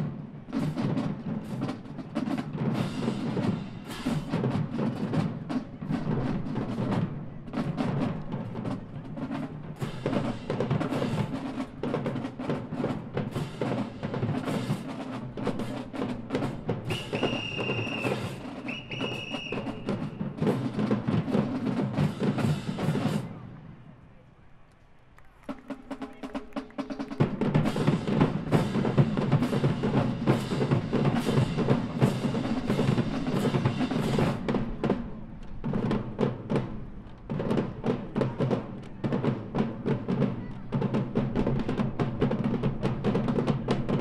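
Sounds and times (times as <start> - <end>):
snare drums: 0.0 - 23.6, 25.1 - 44.0
tenor drums: 0.0 - 23.8, 25.1 - 44.0
long whistle blasts: 16.9 - 20.0.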